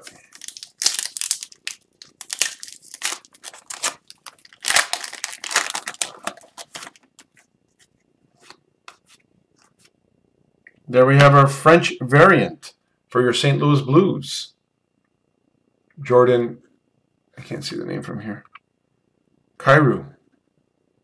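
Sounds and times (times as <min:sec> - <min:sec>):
foil wrapper tearing and crinkling: 0:00.0 - 0:07.3
cards rustling: 0:00.0 - 0:09.9.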